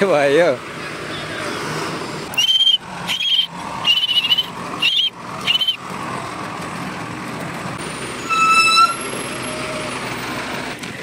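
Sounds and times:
truck engine running: 2.2s - 8.3s
loud squealing bursts: 2.3s - 5.8s, 8.2s - 9.7s.

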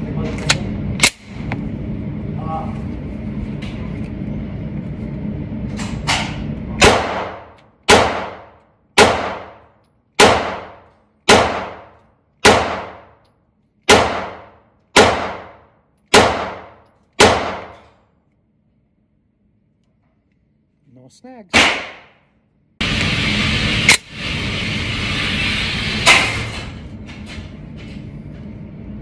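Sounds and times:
pistol shots indoors: 6.1s - 18.2s, 21.5s - 22.4s, 25.8s - 26.6s.

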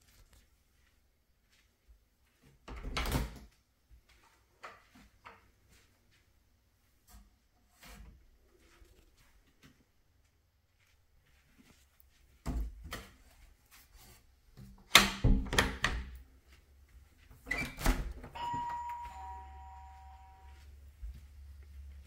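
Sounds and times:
wooden door knocks and thumps: 15.0s - 16.1s
two-note chime: 18.4s - 20.7s.

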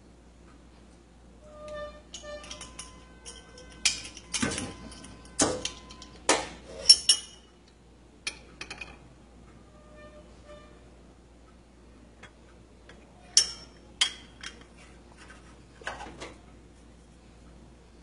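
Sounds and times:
metal spoon clinking on glass bowl: 2.1s - 6.1s, 13.3s - 14.6s.

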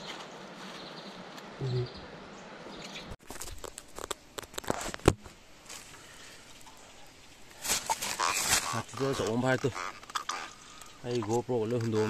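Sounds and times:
rustling and scuffling: 3.2s - 6.7s, 7.5s - 9.8s.

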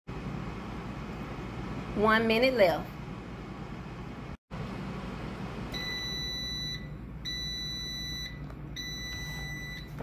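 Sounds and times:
air fryer alarm beeps: 5.7s - 10.0s.

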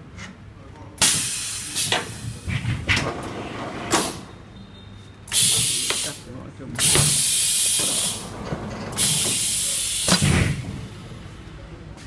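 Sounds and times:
loud compressed air hiss: 1.0s - 2.6s, 5.3s - 8.3s, 9.0s - 10.7s
short sharp air bursts: 1.0s - 2.6s, 5.3s - 8.3s, 9.0s - 10.6s.

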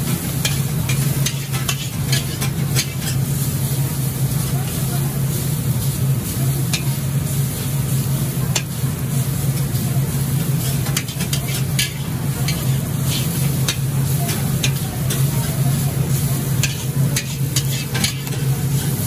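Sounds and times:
noodles sizzling in a wok: 0.0s - 19.0s
metal spatula scraping a wok: 0.4s - 3.4s, 10.4s - 15.3s, 16.5s - 19.0s.

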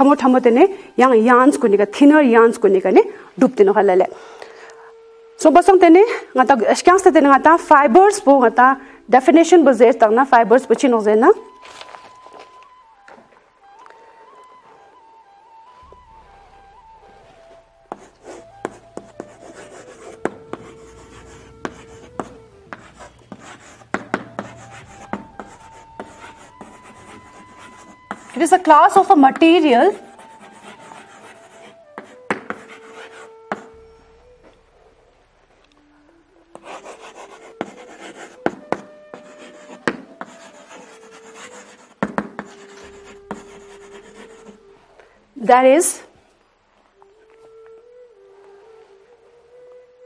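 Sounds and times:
chalk writing on blackboard: 17.9s - 28.4s, 29.9s - 33.8s, 36.6s - 44.6s.

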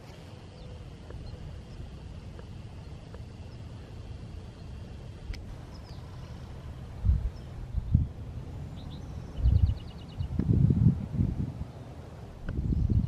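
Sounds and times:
steady low rumble: 0.0s - 13.0s
faint high bird chirps: 0.4s - 1.9s, 5.6s - 8.1s, 8.7s - 10.4s.

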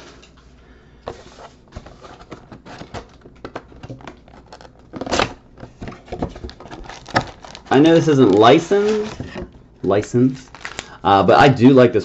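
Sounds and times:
rustling scrape: 0.0s - 2.9s, 8.4s - 9.4s.

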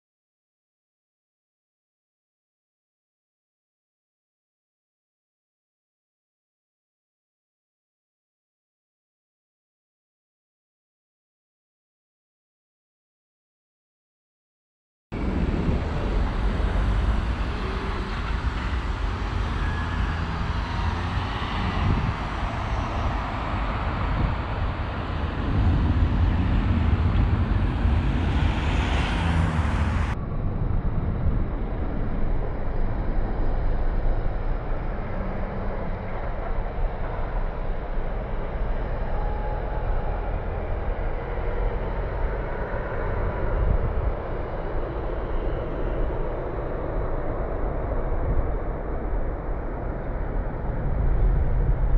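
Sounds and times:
cars and buses passing: 15.2s - 51.9s.

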